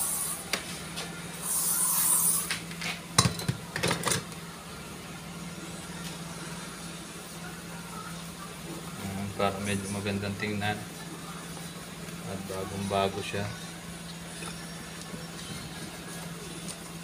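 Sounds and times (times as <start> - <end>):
spray bottle hissing: 0.0 - 0.4, 1.4 - 2.6
steady low hum: 0.0 - 17.0.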